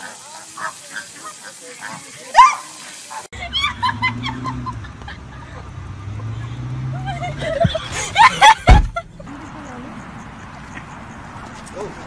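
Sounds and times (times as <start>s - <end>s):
flamingos honking and gabbling: 0.0s - 8.6s.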